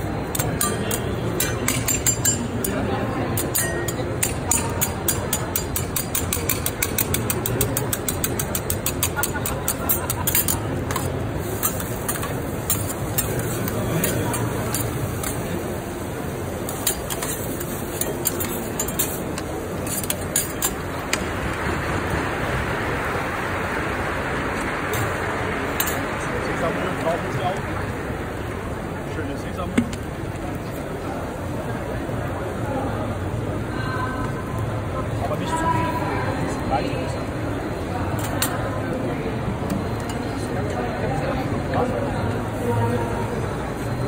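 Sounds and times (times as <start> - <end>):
metal spatulas clicking on griddle: 0.2 - 15.8, 16.6 - 21.3, 25.8 - 26.0, 38.2 - 38.6
food sizzling on hot plate: 10.9 - 21.2.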